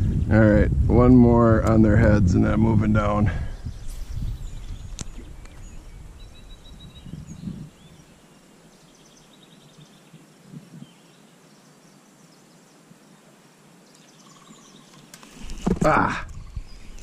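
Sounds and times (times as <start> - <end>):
low microphone rumble: 0.0 - 8.1
small birds chirping: 3.4 - 17.0.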